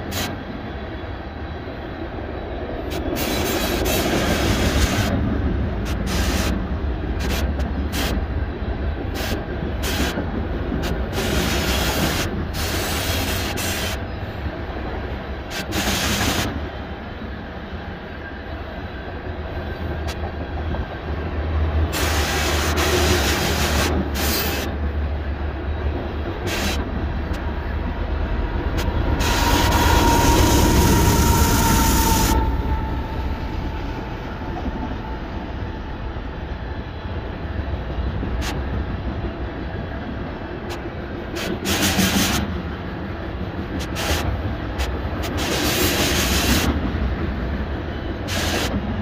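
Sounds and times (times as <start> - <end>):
freight train wheels rumbling on rail: 0.0 - 49.0
sharp rail clicks: 28.5 - 32.5, 43.6 - 46.9.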